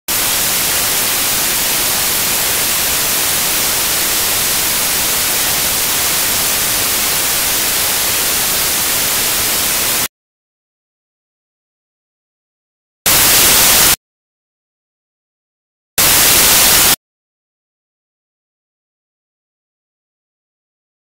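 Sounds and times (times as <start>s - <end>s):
loud white noise hiss: 0.1s - 10.1s, 13.1s - 14.0s, 16.0s - 17.0s.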